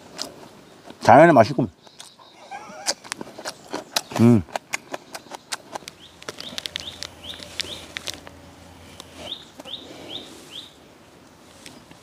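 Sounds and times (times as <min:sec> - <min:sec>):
small bird chirping: 0:01.7 - 0:08.3, 0:08.9 - 0:10.8.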